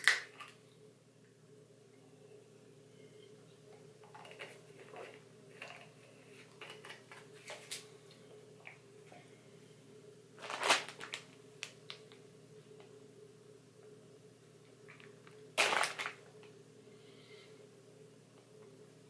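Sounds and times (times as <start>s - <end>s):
steady low hum: 0.2s - 19.0s
plastic bag rustling: 10.4s - 11.4s, 15.6s - 16.3s.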